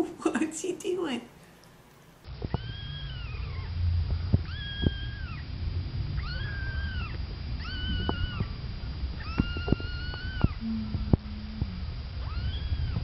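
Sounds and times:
low background rumble: 2.2 - 13.0
kitten mewing: 6.2 - 8.5, 9.2 - 13.0.

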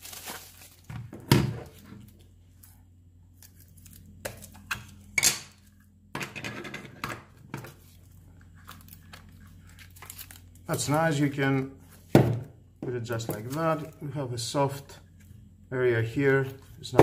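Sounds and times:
hands handling packaging: 0.0 - 2.7, 7.6 - 12.2, 13.1 - 14.0
faint low hum: 0.0 - 17.0.

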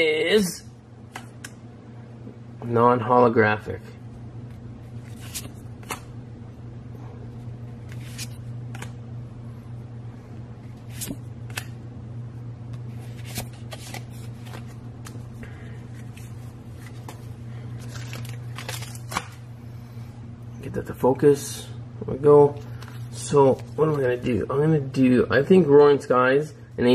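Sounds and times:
steady low hum: 0.0 - 26.9
trading cards flicking and clicking: 4.5 - 6.1, 7.8 - 9.0, 10.9 - 11.8.

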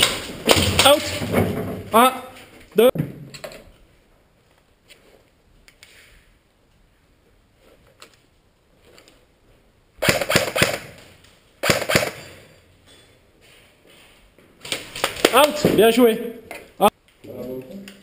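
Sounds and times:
airsoft gun shots: 10.0 - 11.0, 11.6 - 12.4.

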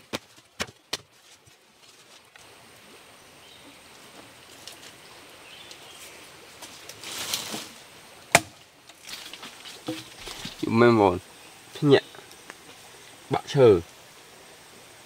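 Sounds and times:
branches rustling: 0.0 - 2.5, 3.5 - 13.4
faint forest background: 0.0 - 15.0
machete chopping into wood: 8.3 - 8.6.

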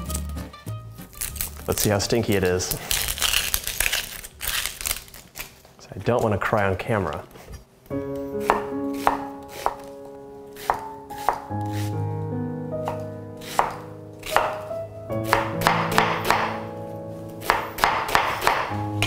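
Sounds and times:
knife chopping on wooden board: 8.4 - 9.9, 10.5 - 11.9, 12.8 - 16.6, 17.4 - 18.8.

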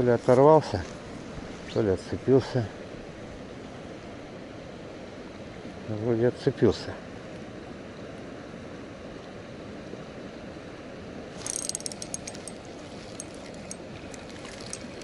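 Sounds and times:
steady outdoor hiss: 0.0 - 15.0
fishing reel clicking: 11.4 - 15.0.

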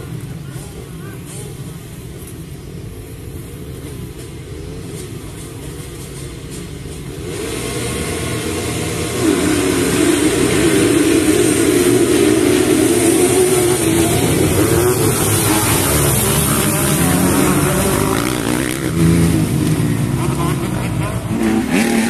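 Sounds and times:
motocross bikes revving: 0.0 - 22.0.

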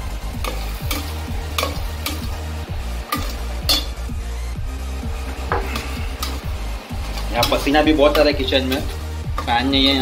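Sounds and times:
paste sizzling in oil: 0.0 - 4.1
spoon scraping and knocking pan: 0.4 - 2.4, 3.0 - 4.0, 5.2 - 10.0.

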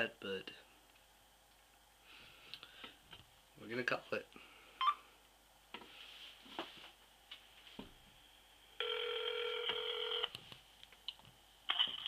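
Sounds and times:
phone ringback tone: 8.8 - 10.3.

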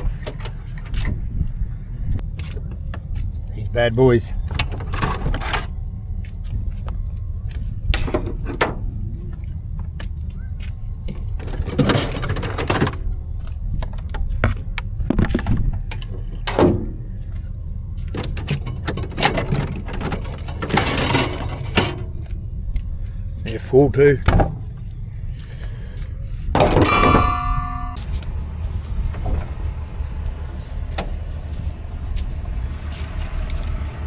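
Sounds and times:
steady low rumble: 0.0 - 34.0
fridge door and contents clattering: 11.4 - 13.0, 18.2 - 22.1.

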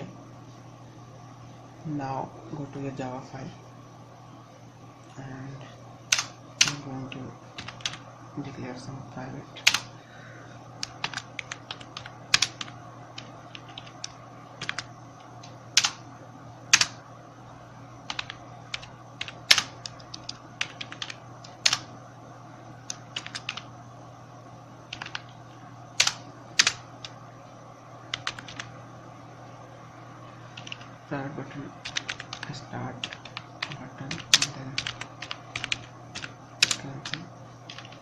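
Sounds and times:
steady low hum: 0.0 - 38.0
computer keyboard typing: 6.1 - 8.0, 9.6 - 9.9, 10.8 - 16.0, 16.7 - 17.0, 18.1 - 21.9, 22.8 - 23.7, 24.9 - 27.2, 28.1 - 28.7, 30.5 - 30.9, 31.8 - 38.0.

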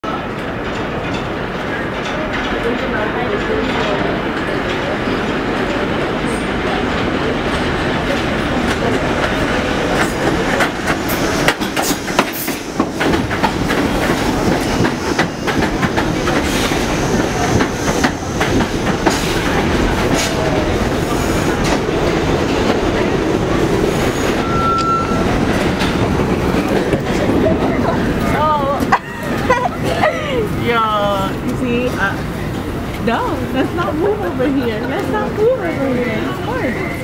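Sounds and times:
subway train running: 0.0 - 37.0
short high squeal: 24.1 - 25.3.

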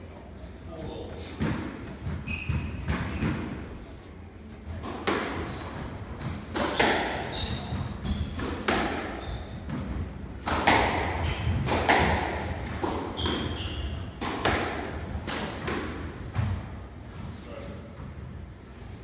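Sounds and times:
shoes squeaking on wooden floor: 2.0 - 3.3, 5.4 - 9.9, 11.2 - 11.8, 12.4 - 14.6.

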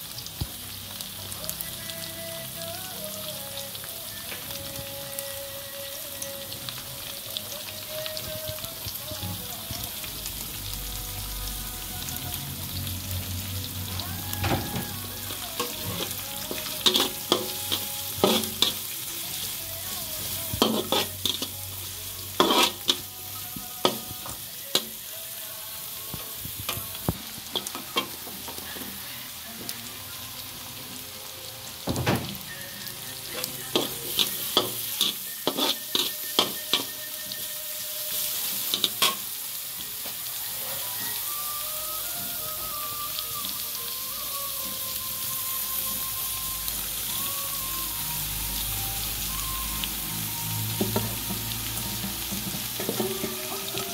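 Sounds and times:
food sizzling in a wok: 0.0 - 53.9.

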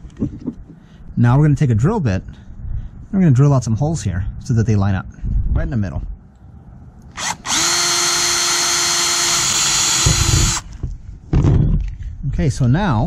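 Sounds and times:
cordless drill whine: 7.2 - 10.8.

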